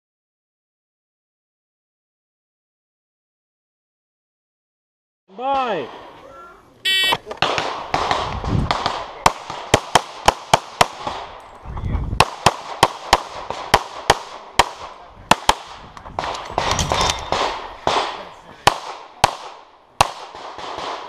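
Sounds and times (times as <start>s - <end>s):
pistol shots: 7.1s - 11.4s, 12.2s - 21.0s.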